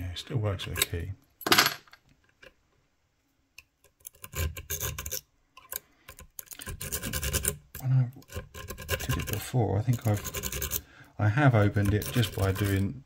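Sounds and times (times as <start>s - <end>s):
lock rake scraping and clicking: 3.8s - 10.8s, 11.5s - 12.9s.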